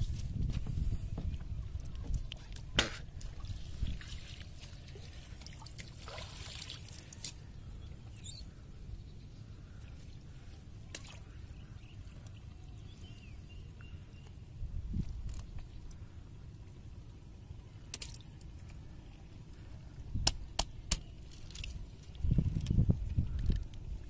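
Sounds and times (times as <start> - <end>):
steady low rumble: 0.0 - 24.0
water trickling and dripping: 3.2 - 7.4.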